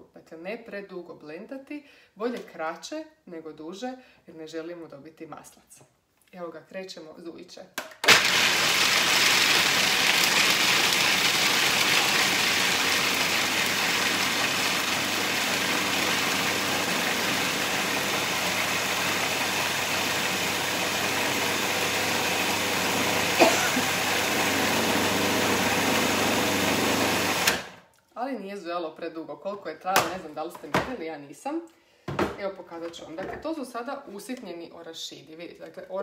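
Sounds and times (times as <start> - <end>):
food processor chopping nuts: 8.0 - 27.8.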